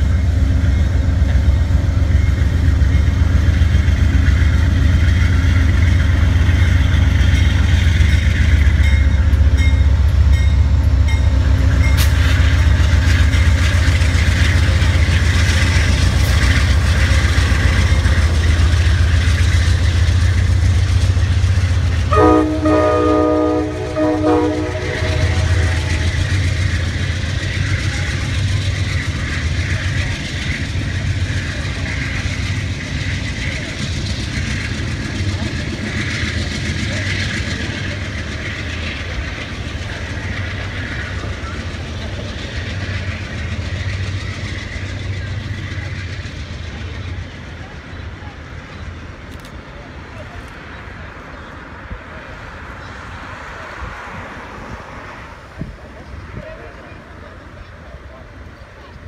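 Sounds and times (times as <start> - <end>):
diesel locomotive engine rumble: 0.0 - 59.0
wheels clattering on rails: 0.0 - 59.0
locomotive air horn blast: 22.0 - 26.2.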